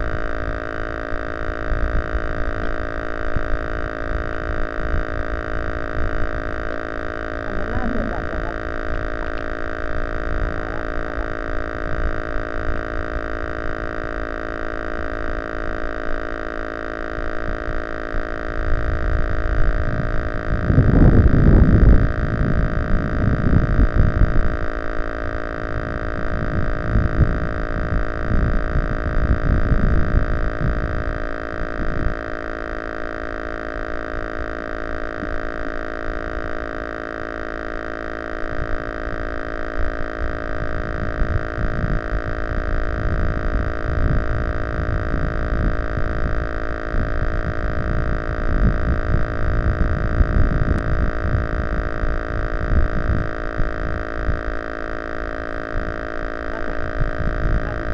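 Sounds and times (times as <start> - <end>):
electrical interference whine: 0.0 - 57.9
wind buffeting microphone: 18.6 - 32.2, 40.2 - 54.7, 55.6 - 57.9.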